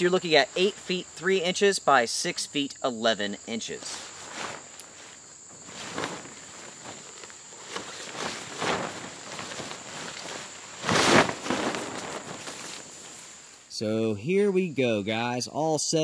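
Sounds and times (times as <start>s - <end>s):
insects chirring: 0.0s - 16.0s
tarp fabric rustling and flapping: 3.7s - 13.7s.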